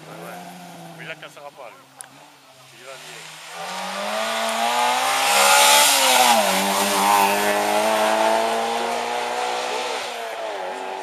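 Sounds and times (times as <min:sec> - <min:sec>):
rally car engine at high revs: 0:03.0 - 0:11.0.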